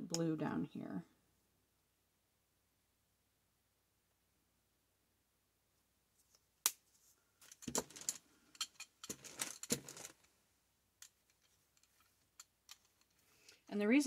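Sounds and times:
craft tools clicking and clattering: 0:07.4 - 0:10.3, 0:11.0 - 0:13.7.

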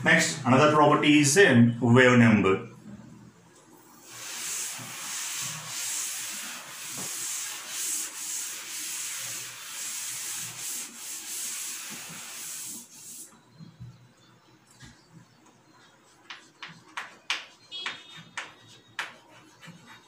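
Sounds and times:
eraser scrubbing a blackboard: 0:04.0 - 0:13.3, 0:15.8 - 0:20.0.

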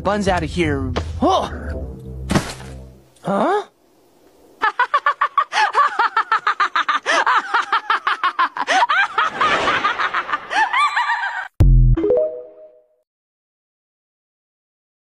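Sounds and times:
woman laughing hard: 0:04.6 - 0:11.5.

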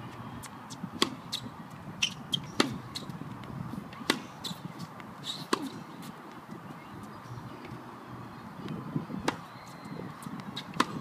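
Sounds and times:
tennis racket striking ball: 0:02.1 - 0:02.8, 0:05.4 - 0:05.8, 0:10.6 - 0:11.0.

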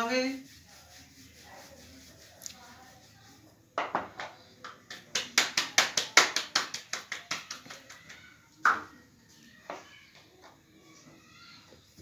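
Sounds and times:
dough slapped between palms: 0:03.8 - 0:08.9.

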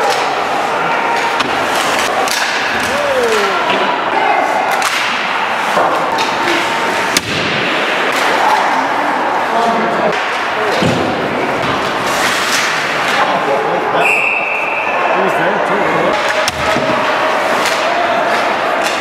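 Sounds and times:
hockey sticks and puck knocking: 0:01.2 - 0:03.8, 0:16.1 - 0:19.0
people shouting: 0:02.2 - 0:07.0.

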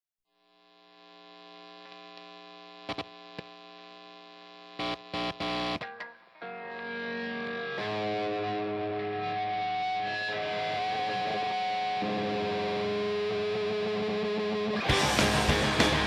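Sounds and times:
distorted electric guitar chords: 0:04.8 - 0:16.0.

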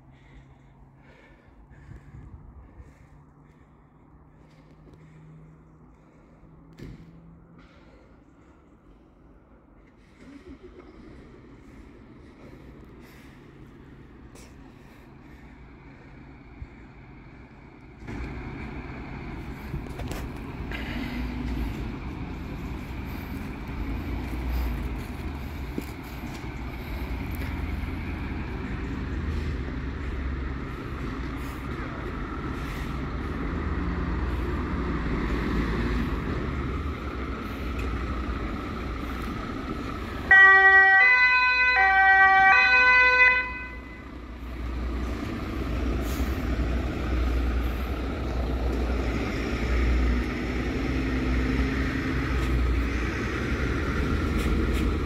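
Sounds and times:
fire engine rumbling: 0:00.0 - 0:55.0
two-tone siren: 0:40.3 - 0:44.1.

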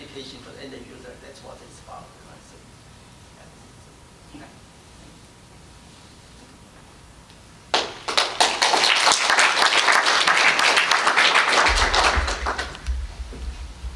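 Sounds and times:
audience applauding: 0:07.7 - 0:13.0.

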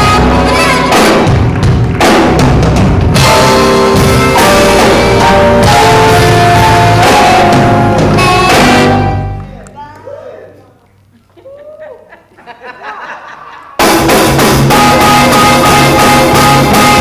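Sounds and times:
saxophone long notes: 0:00.0 - 0:01.0, 0:03.2 - 0:09.5
drum kit fills: 0:00.0 - 0:09.7, 0:13.8 - 0:17.0
electric bass: 0:00.0 - 0:09.7, 0:13.8 - 0:17.0.

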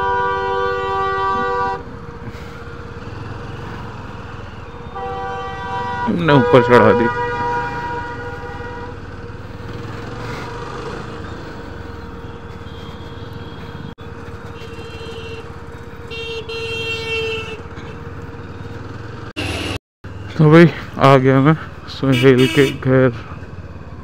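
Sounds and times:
vehicle horns honking: 0:00.0 - 0:01.9, 0:04.2 - 0:09.1, 0:11.0 - 0:18.0, 0:19.4 - 0:19.8, 0:22.0 - 0:23.1
road and wind rumble: 0:00.0 - 0:24.0.

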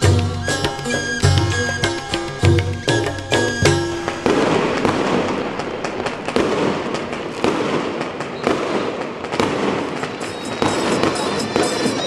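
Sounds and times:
fireworks bangs: 0:02.4 - 0:12.0
fireworks crackling and popping: 0:02.4 - 0:12.0.

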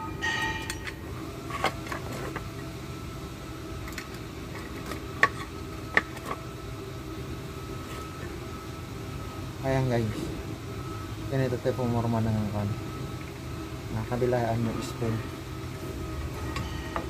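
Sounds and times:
metallic ring: 0:00.0 - 0:01.7, 0:16.4 - 0:17.0
fan-like hum: 0:00.0 - 0:17.0
metal parts clicking and clinking: 0:00.2 - 0:02.5.

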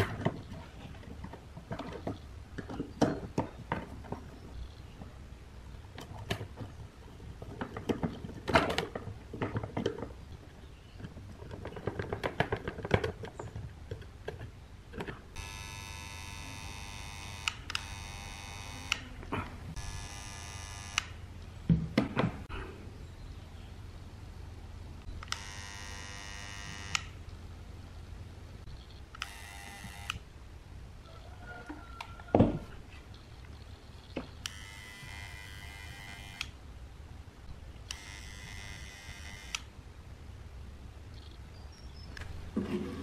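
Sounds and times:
steady buzzing tone: 0:15.4 - 0:21.4, 0:25.2 - 0:27.2, 0:29.2 - 0:30.2, 0:34.4 - 0:36.6, 0:37.8 - 0:39.7.

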